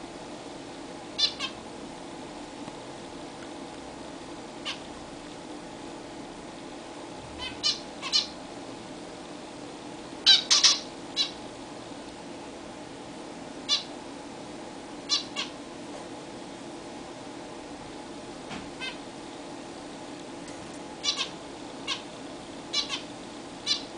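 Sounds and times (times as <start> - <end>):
finches giving short calls: 10.3 - 11.4, 21.0 - 21.3.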